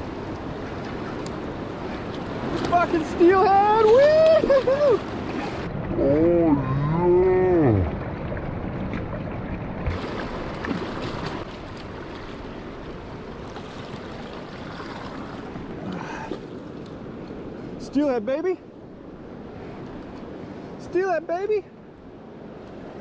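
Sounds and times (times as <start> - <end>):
river water rushing: 0.0 - 6.0, 6.6 - 23.0
man whooping: 3.8 - 5.0.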